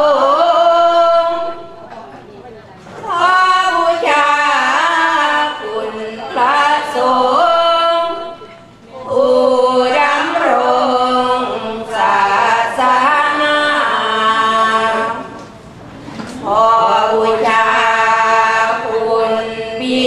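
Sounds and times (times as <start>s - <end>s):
women chanting unaccompanied: 0.0s - 1.8s, 3.0s - 15.4s, 16.3s - 20.0s.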